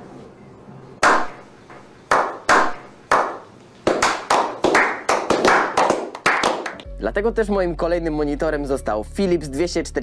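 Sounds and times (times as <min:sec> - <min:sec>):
slow hand clapping: 0:02.1 - 0:06.9.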